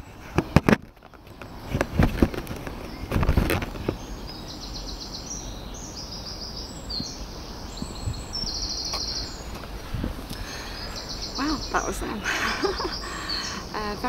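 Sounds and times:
bird singing trilled phrases: 0:02.2 - 0:09.6, 0:10.3 - 0:14.0
steady low rumble: 0:06.0 - 0:14.0.

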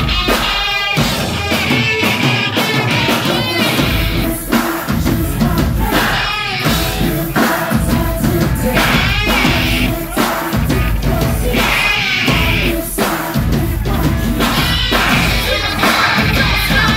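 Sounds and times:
heavy electric guitar: 0:00.0 - 0:16.9
live rock band: 0:00.0 - 0:16.9
pounding drum kit: 0:00.0 - 0:16.9
woman singing: 0:01.8 - 0:16.9
deep bass: 0:03.8 - 0:06.0, 0:07.8 - 0:10.0, 0:10.6 - 0:12.8, 0:13.4 - 0:16.9.

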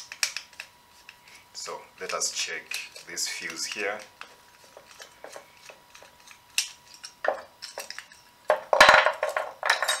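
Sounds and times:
metal clinking clatter: 0:06.9 - 0:10.0.

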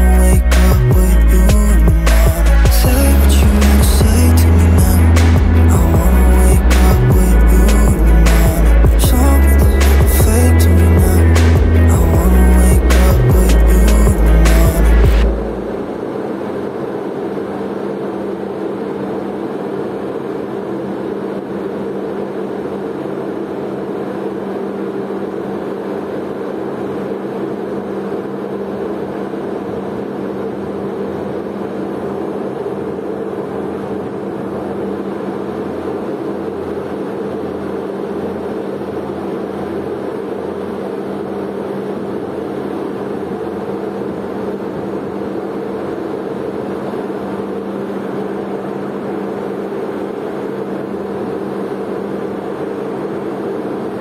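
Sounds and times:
ship engines droning: 0:00.0 - 0:24.5.

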